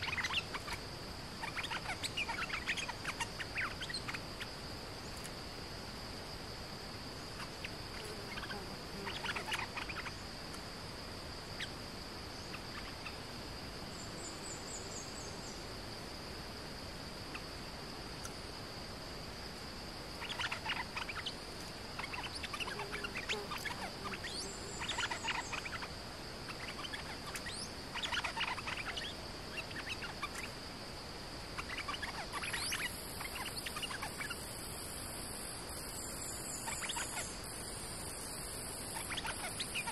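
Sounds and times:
bulbul singing: 0:00.0 - 0:00.8, 0:01.4 - 0:04.3, 0:07.4 - 0:10.2, 0:20.2 - 0:25.9, 0:26.5 - 0:30.6, 0:31.6 - 0:34.4, 0:36.3 - 0:37.4, 0:38.8 - 0:39.9
high insect drone: 0:00.0 - 0:39.9.

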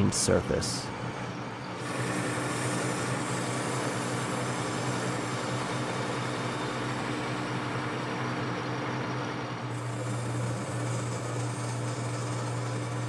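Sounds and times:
metal lathe motor hum: 0:00.9 - 0:13.0
cutting tool hissing on metal: 0:01.8 - 0:07.3, 0:09.7 - 0:13.0.

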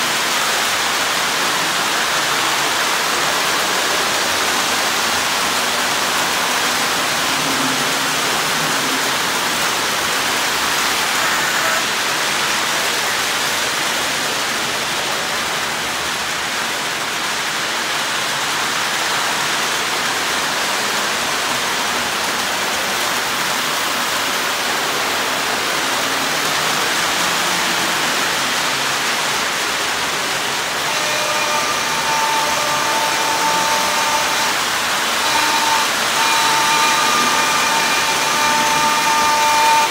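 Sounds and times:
toy trains rolling on track: 0:00.0 - 0:39.9
steady tones: 0:30.8 - 0:39.9.

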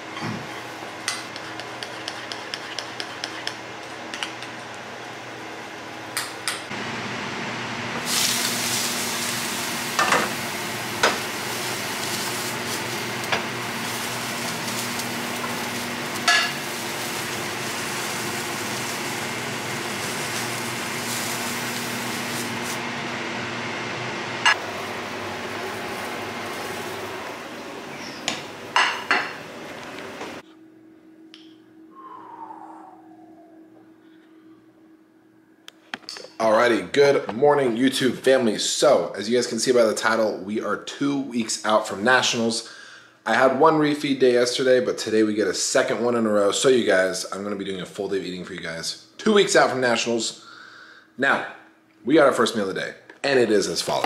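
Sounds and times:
fork stirring batter in bowl: 0:01.2 - 0:03.6
egg whites sizzling in pan: 0:08.0 - 0:22.9, 0:24.5 - 0:27.7.

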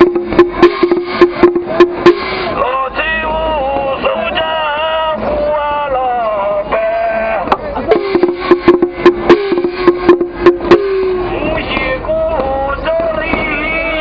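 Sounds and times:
brass hand gong struck quickly: 0:00.0 - 0:02.5, 0:07.9 - 0:11.3
man chanting: 0:02.5 - 0:08.1, 0:11.2 - 0:14.0.

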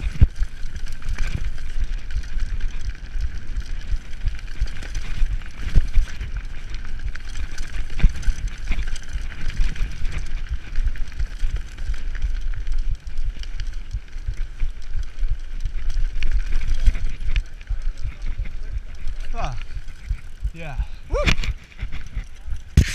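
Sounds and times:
bike tyres rolling over dirt: 0:00.0 - 0:22.9
bike knocks and rattles: 0:21.2 - 0:22.9.

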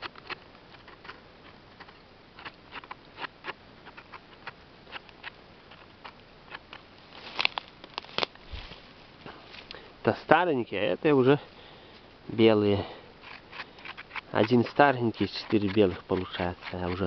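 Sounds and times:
mushroom rustling into bucket: 0:07.0 - 0:09.8
knife scraping mushroom stem: 0:13.2 - 0:17.0.

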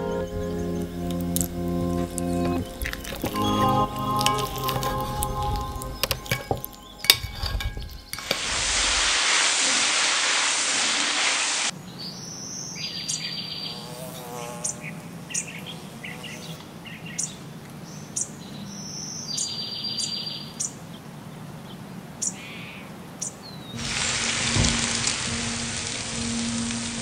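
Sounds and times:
insects trilling: 0:00.0 - 0:09.2
birds chirping: 0:00.0 - 0:09.8, 0:10.9 - 0:27.0
loud even hiss: 0:01.1 - 0:11.7, 0:23.8 - 0:27.0.

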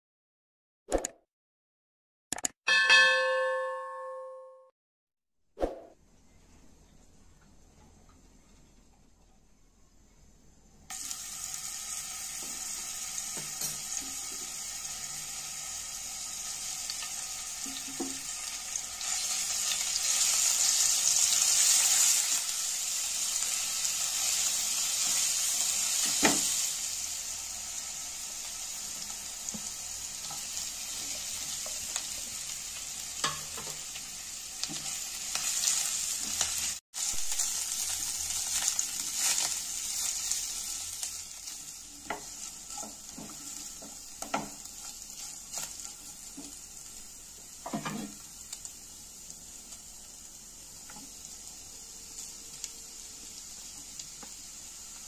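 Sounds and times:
food sizzling in hot oil: 0:10.9 - 0:55.0
spatula scraping and tapping pan: 0:33.2 - 0:33.9, 0:42.0 - 0:46.6, 0:47.6 - 0:48.2.

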